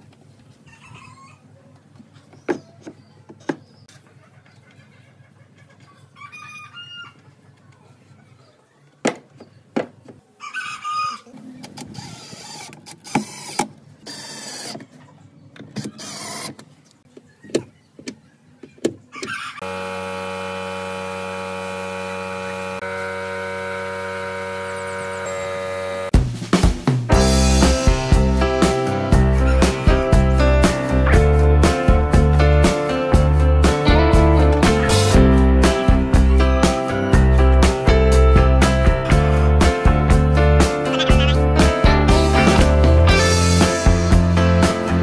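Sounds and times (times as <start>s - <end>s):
workshop knocks and clicks: 9.0s - 10.2s
steady machine hum: 19.6s - 26.2s.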